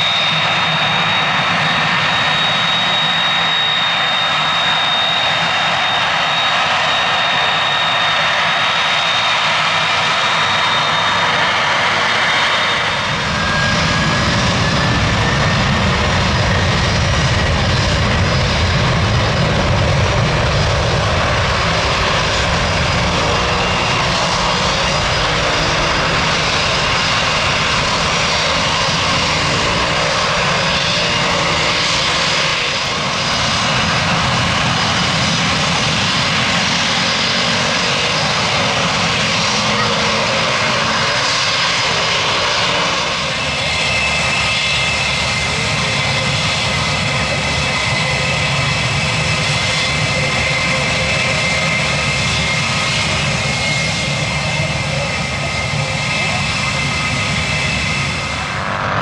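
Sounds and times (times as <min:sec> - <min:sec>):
jet engines on departure: 0:00.0 - 0:59.0
twin piston engines droning: 0:00.0 - 0:59.0.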